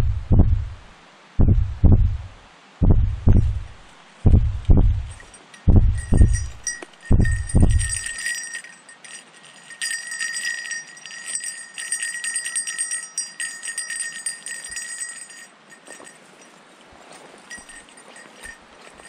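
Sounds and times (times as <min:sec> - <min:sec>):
heavy low thumps: 0:00.0 - 0:08.1
bear bell jangling: 0:05.0 - 0:19.0
footsteps through grass: 0:15.8 - 0:19.0.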